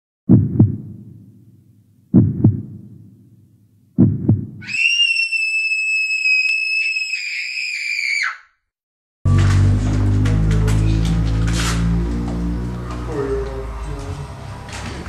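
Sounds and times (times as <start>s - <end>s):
heartbeat thumps: 0.3s - 4.6s
high-pitched scream: 4.6s - 8.6s.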